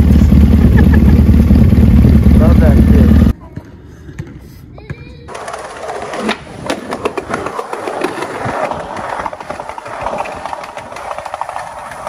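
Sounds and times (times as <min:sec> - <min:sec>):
skateboard rolling on pavement: 0:05.2 - 0:12.0.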